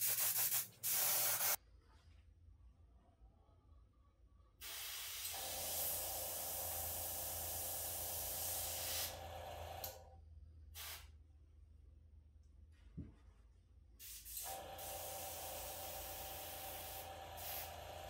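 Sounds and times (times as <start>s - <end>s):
airbrush spraying paint: 0.0s - 1.6s, 4.6s - 9.2s, 14.0s - 18.0s.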